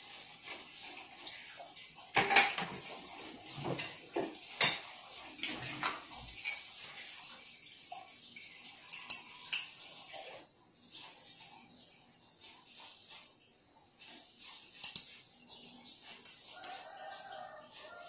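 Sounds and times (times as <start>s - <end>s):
kitchenware clinking and knocking: 2.0s - 7.2s, 8.8s - 10.4s, 14.5s - 18.0s.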